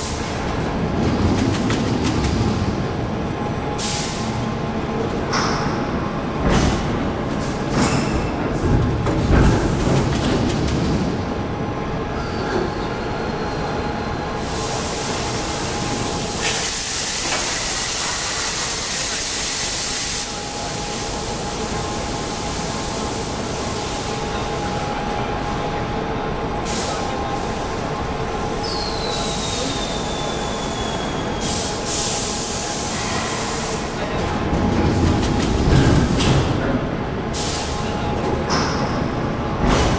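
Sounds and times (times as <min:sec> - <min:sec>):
machine hum and clatter: 0:00.0 - 0:28.6, 0:31.5 - 0:39.9
loud hiss: 0:14.5 - 0:21.1.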